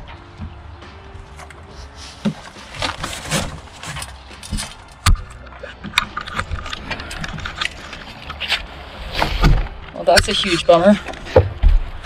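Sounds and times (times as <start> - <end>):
cardboard rustling and scraping: 1.3 - 5.0, 6.4 - 9.8.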